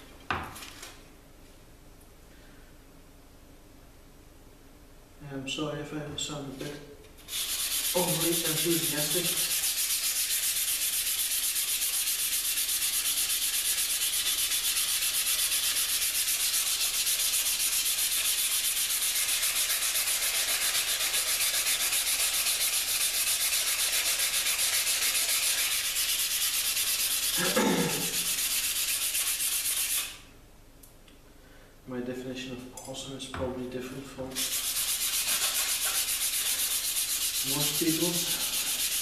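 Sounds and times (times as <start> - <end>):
hand rubbing knife blade: 34.3 - 39.0.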